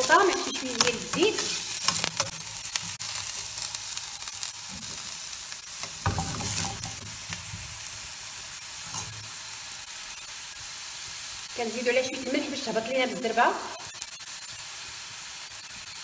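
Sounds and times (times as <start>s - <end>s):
metal spoon scraping a pan: 0.0s - 5.1s, 5.8s - 7.5s, 8.8s - 9.3s
onion sizzling in oil: 0.0s - 16.0s.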